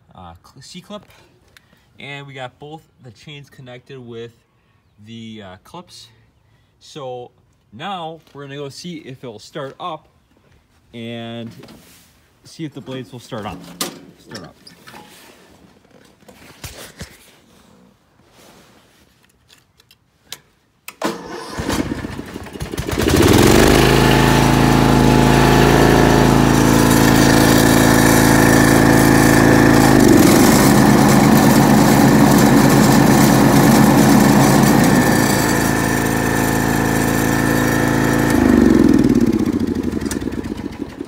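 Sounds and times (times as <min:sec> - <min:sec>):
riding mower engine running: 0:21.0 - 0:41.0
mower blades spinning: 0:21.7 - 0:41.0.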